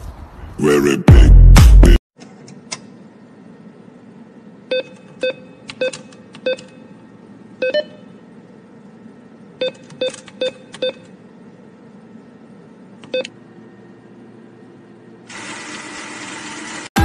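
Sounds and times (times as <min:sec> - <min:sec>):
keypad beeps: 0:04.7 - 0:06.8, 0:09.6 - 0:11.1.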